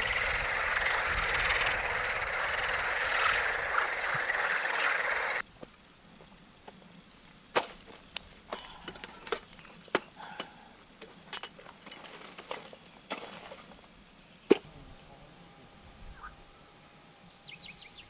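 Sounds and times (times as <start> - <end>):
firewood sticks knocking together: 7.6 - 13.6.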